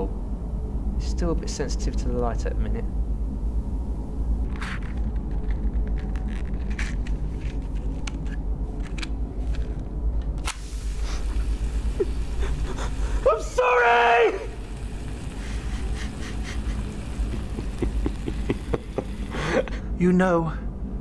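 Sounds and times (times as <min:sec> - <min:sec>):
low rumbling drone: 0:00.0 - 0:20.0
bright hiss: 0:10.4 - 0:19.7.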